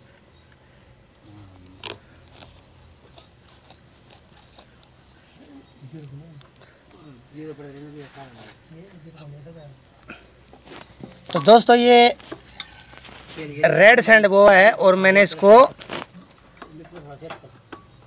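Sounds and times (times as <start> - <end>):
crickets chirring: 0.0 - 18.0
faint voices murmuring: 1.2 - 3.2, 5.1 - 17.6
handling clicks and rustles: 15.3 - 18.0.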